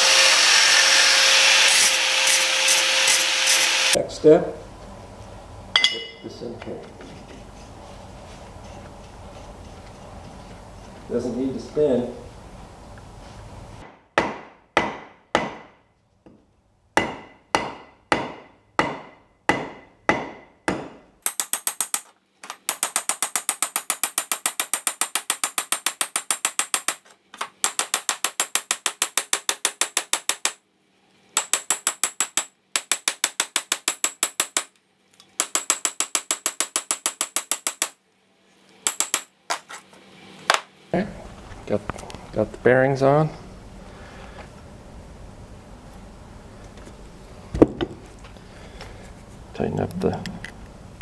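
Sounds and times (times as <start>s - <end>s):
hammer striking steel: 5.8s - 6.2s, 13.8s - 15.8s, 17.0s - 30.6s, 31.4s - 34.7s, 35.4s - 38.0s, 38.9s - 39.3s.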